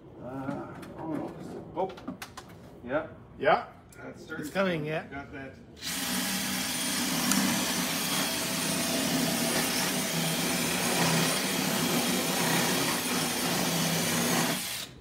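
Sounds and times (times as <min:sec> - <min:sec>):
cordless drill boring into steel: 0:05.8 - 0:15.0.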